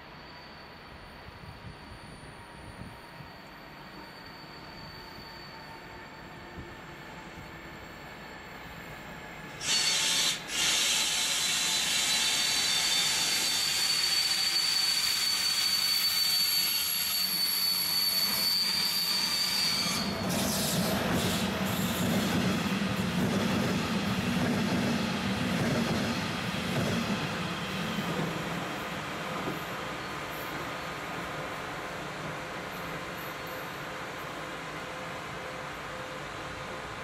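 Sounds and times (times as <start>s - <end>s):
train brakes squealing: 0.0s - 24.4s, 25.0s - 37.0s
train rumble and hum: 19.4s - 37.0s.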